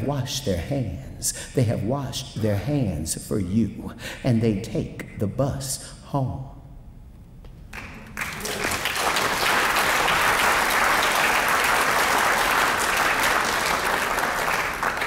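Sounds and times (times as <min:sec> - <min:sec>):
audience applauding: 0:07.7 - 0:15.0.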